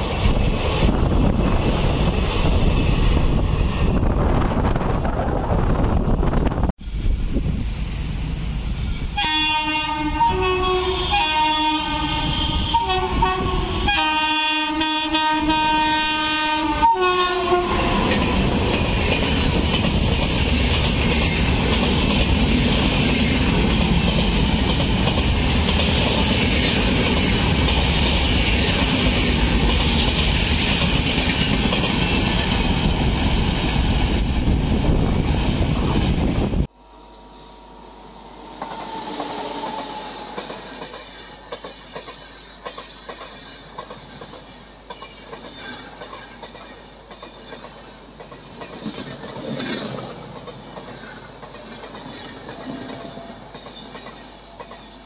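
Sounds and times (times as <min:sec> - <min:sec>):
locomotive horn blasts: 0:09.2 - 0:18.2
train wheels clattering: 0:17.8 - 0:34.2, 0:38.6 - 0:55.0.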